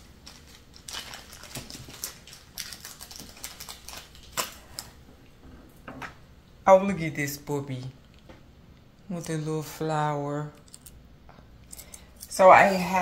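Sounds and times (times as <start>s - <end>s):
packaging crinkling: 0.0s - 5.0s.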